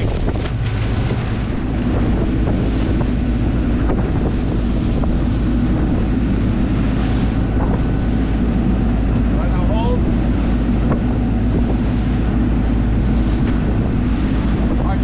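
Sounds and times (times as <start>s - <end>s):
boat engine droning: 0.0s - 15.0s
rush of boat wake: 0.0s - 15.0s
wind buffeting microphone: 0.0s - 15.0s.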